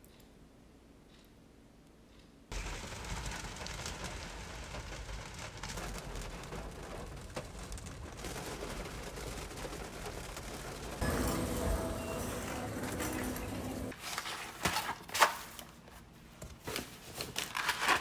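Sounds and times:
rain on car roof: 2.5s - 14.0s.

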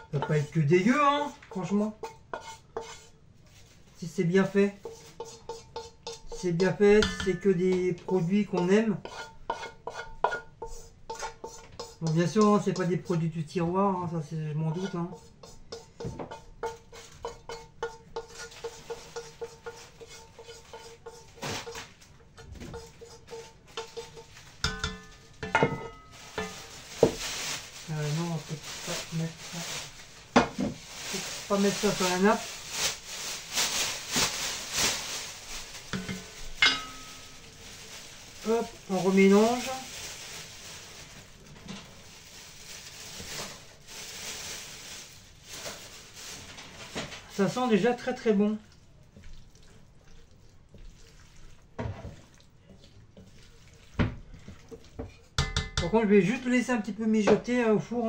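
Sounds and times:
wooden spoon scraping frying pan: 0.0s - 56.5s
pan clanking against pot: 7.0s - 7.6s, 23.7s - 26.7s, 35.9s - 37.1s, 55.4s - 56.0s.

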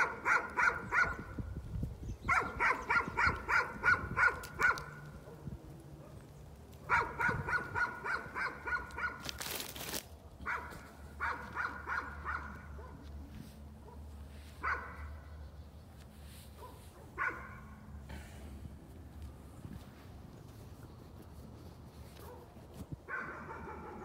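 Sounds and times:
dog barking: 0.0s - 1.3s, 2.3s - 6.2s, 6.8s - 9.2s, 10.4s - 13.2s, 13.8s - 15.2s, 16.5s - 17.8s, 22.2s - 24.0s.

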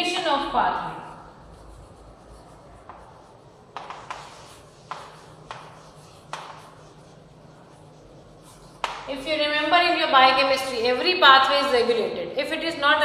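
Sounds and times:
chalk scratching: 0.4s - 11.0s
chalk tapping on chalkboard: 1.3s - 9.4s.

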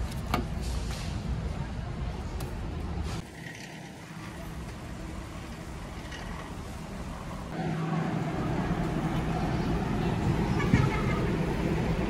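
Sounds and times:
shopping cart rolling on concrete: 3.2s - 7.1s.

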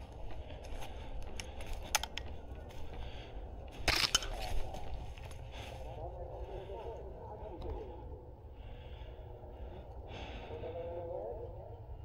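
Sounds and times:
footsteps on dry forest floor: 0.0s - 7.0s
twigs cracking underfoot: 3.7s - 5.5s.

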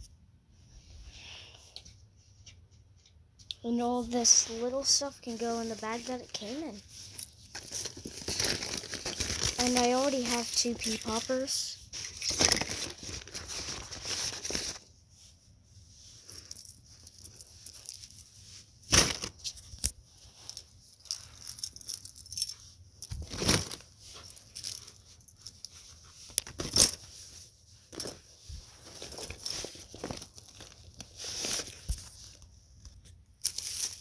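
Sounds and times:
plastic toys rustling in bag: 3.8s - 14.9s, 20.3s - 32.5s, 33.4s - 34.0s.

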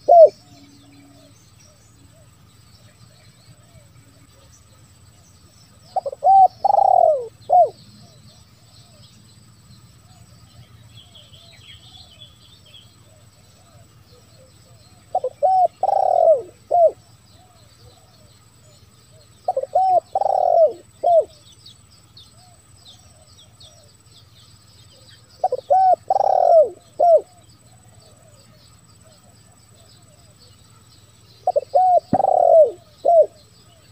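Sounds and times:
dove cooing: 0.0s - 2.5s, 5.7s - 9.0s, 13.0s - 21.4s, 24.9s - 30.6s, 31.4s - 33.9s
small birds chirping faintly: 0.0s - 33.9s.

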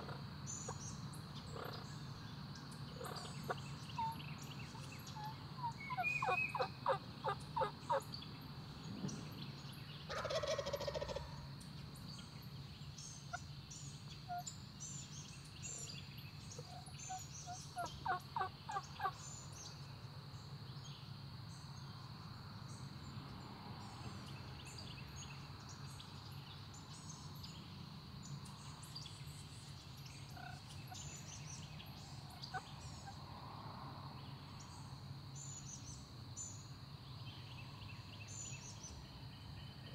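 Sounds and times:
small birds chirping: 0.0s - 10.9s, 11.9s - 19.9s, 23.9s - 33.2s
turkey gobbling: 5.2s - 8.0s, 10.1s - 11.3s, 17.8s - 19.1s, 30.4s - 30.6s.

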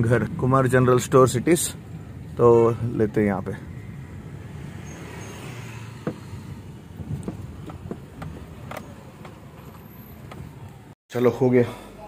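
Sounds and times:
car engine rumble from cabin: 5.8s - 11.0s.

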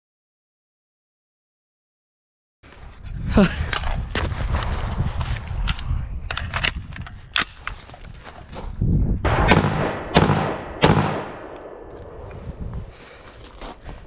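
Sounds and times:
metallic rifle clicks: 5.6s - 7.9s, 11.2s - 12.1s
rifle gunshots with echo: 9.2s - 12.5s.

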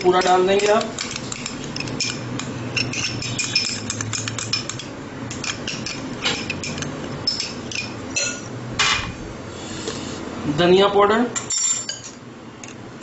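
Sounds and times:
metal spoon clinking on bowl: 0.0s - 8.5s, 11.4s - 12.2s.

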